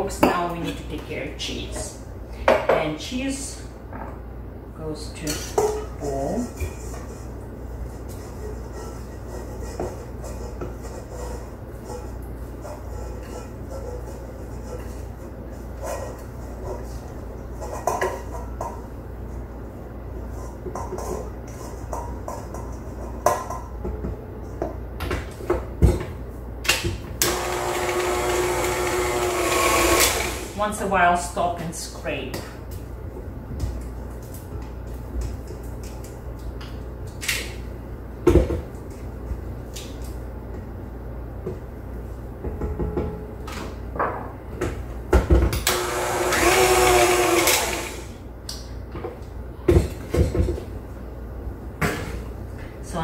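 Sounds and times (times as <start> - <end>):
mixer clunk: 26.8 - 30.6
stand mixer motor whining: 27.2 - 30.6, 45.7 - 48.1.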